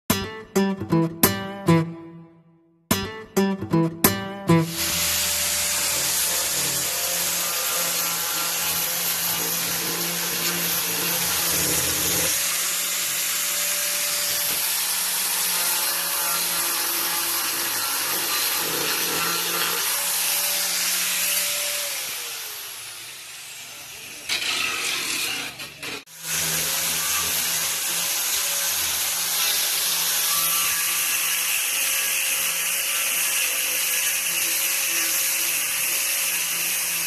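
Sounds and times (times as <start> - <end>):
angle grinder cutting plywood: 4.5 - 37.0.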